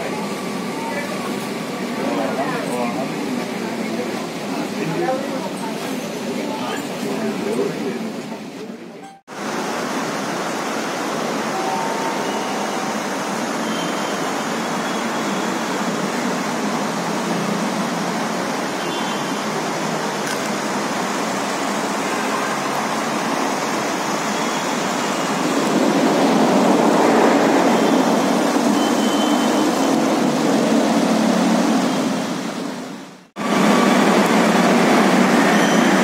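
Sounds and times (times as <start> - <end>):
train rushing rumble: 0.0 - 36.0.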